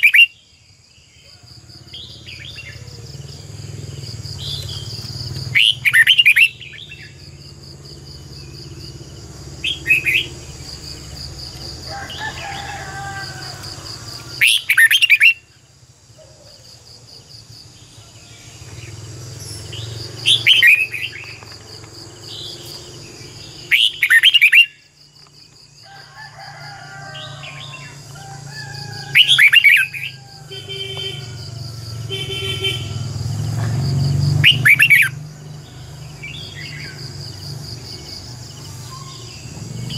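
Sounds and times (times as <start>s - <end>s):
high insect drone: 0.0s - 39.9s
bird singing whistled phrases: 34.5s - 35.1s.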